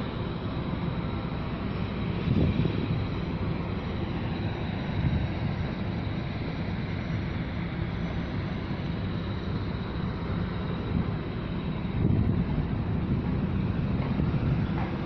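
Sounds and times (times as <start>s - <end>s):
ship engine rumble: 0.0s - 15.0s
wind buffeting the microphone: 1.0s - 6.2s, 10.8s - 15.0s.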